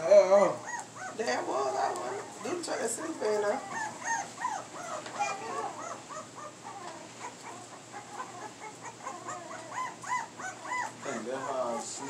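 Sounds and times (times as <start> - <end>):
puppies whimpering: 0.0 - 12.0.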